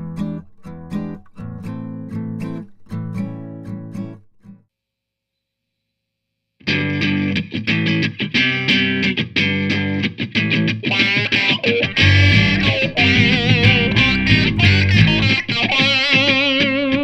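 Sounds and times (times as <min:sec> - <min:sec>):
guitar-led rock music: 0:06.6 - 0:17.0.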